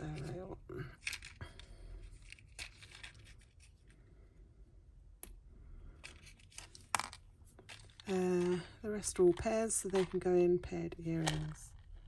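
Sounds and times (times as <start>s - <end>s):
cardboard card rustling: 1.0s - 3.9s, 6.0s - 10.3s.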